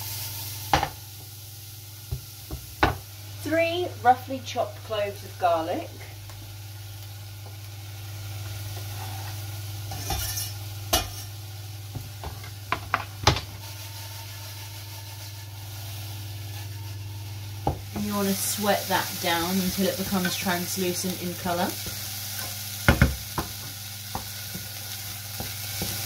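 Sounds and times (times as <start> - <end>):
onion sizzling in oil: 0.0 - 26.0
pan and utensils clattering: 9.9 - 11.4.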